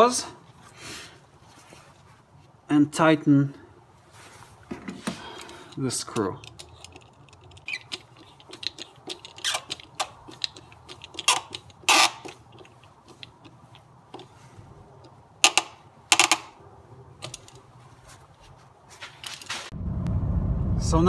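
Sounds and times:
screwdriver clicking on metal screw: 5.4 - 14.3, 15.0 - 16.5.

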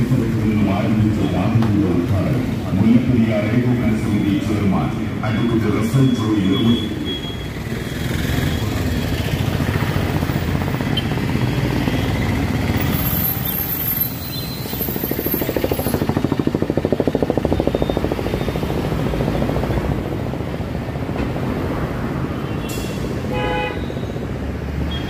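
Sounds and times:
street traffic: 0.0 - 25.0
small engine running: 12.7 - 19.8.

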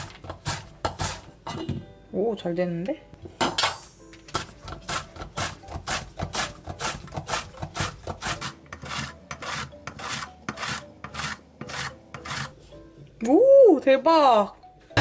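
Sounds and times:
vegetable scraping across slicer: 0.0 - 1.3, 4.4 - 12.7.

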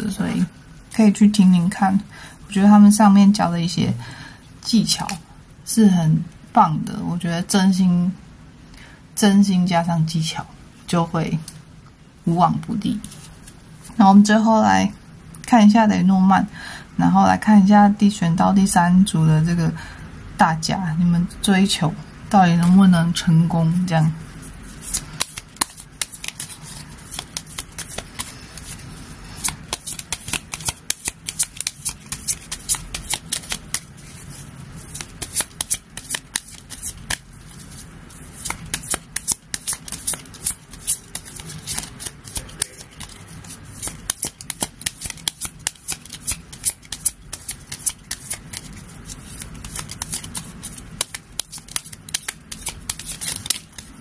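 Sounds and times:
cards being shuffled: 13.0 - 14.0, 24.4 - 54.0.

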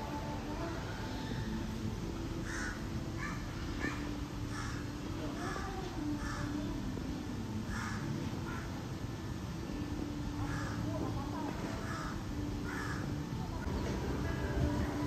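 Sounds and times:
crows cawing: 2.4 - 5.6, 6.2 - 6.6, 7.7 - 8.7, 10.4 - 10.8, 11.8 - 13.2.

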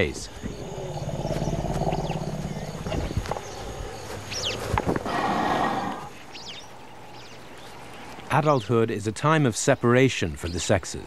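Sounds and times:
high bird chirps: 0.3 - 3.7
harsh animal call: 0.4 - 3.8.

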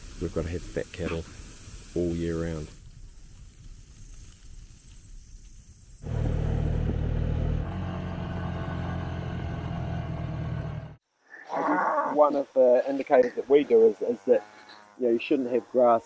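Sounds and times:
quad bike engine droning: 6.0 - 11.0, 13.2 - 16.0.

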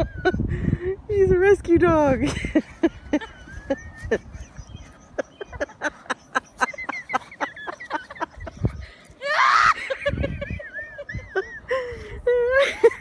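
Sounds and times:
person laughing and giggling: 0.0 - 0.7, 2.2 - 13.0
person shrieking: 9.2 - 9.8.

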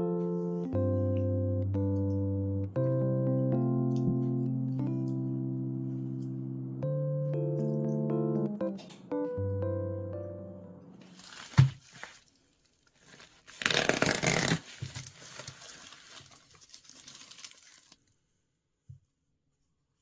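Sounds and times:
packaging rustling and crinkling: 11.0 - 18.0.

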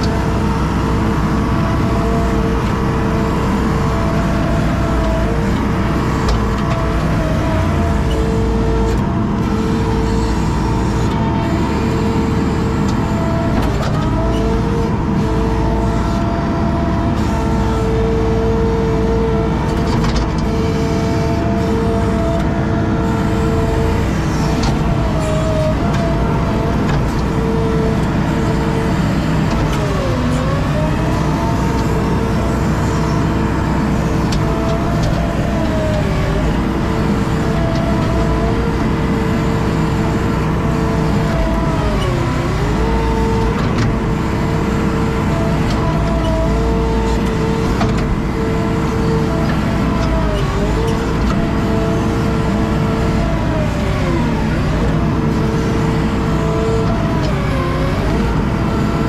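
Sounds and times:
diesel engine at high throttle: 0.0 - 59.0.

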